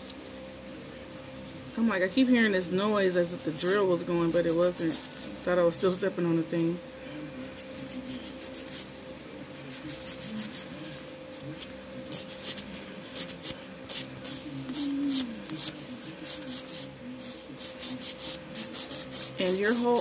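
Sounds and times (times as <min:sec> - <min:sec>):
nail file rasping: 0:12.1 - 0:20.0.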